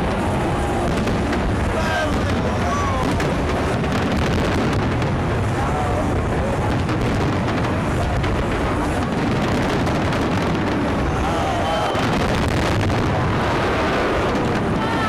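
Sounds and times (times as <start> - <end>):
fireworks bursting and crackling: 0.0 - 15.0.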